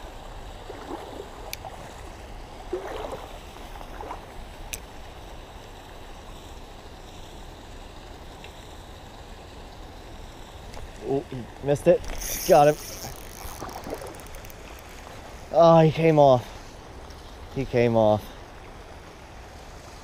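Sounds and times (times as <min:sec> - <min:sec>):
stony creek flowing: 0:00.0 - 0:20.0.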